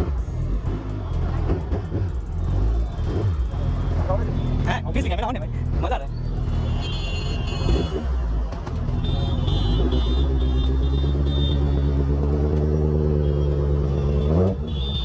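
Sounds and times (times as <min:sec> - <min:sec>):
motorcycle engine running: 0:00.0 - 0:06.8.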